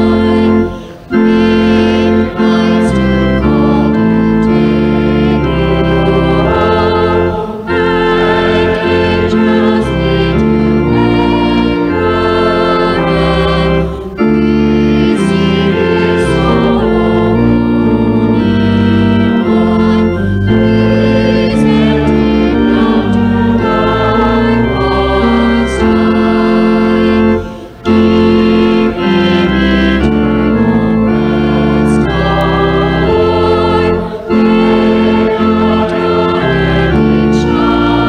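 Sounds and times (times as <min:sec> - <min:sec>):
organ playing sustained chords: 0:00.0 - 0:38.0.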